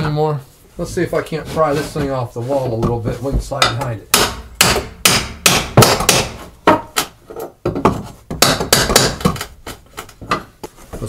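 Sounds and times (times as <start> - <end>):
hammer striking steel pry bar: 3.6 - 6.8.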